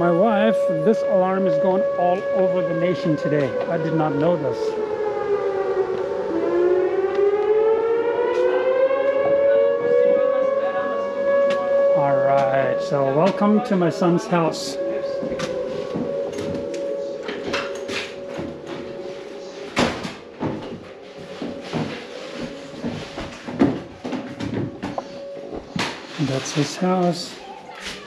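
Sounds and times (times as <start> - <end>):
warning siren wailing: 0.0 - 28.0
footsteps on wooden floor: 15.2 - 26.4.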